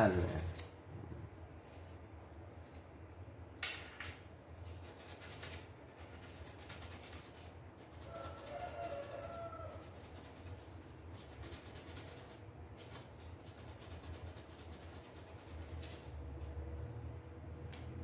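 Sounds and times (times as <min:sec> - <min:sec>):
sandpaper rubbing on metal: 0:00.0 - 0:00.7, 0:04.7 - 0:09.1.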